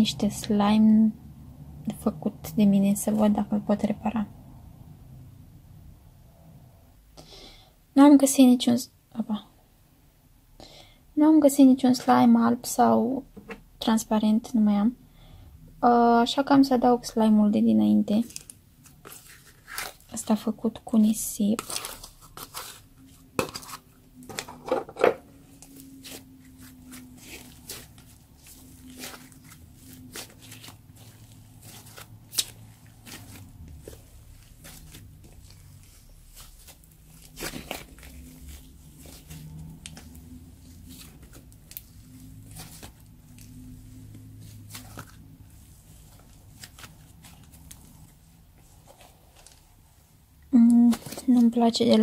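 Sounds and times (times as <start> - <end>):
slime squishing and crackling: 18.1 - 24.3, 25.4 - 49.8.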